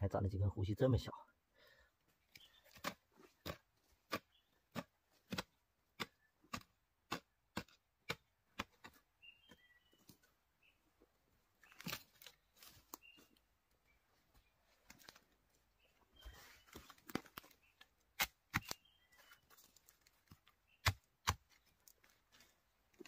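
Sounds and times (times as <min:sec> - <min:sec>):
hoe striking earth: 0:02.8 - 0:09.6.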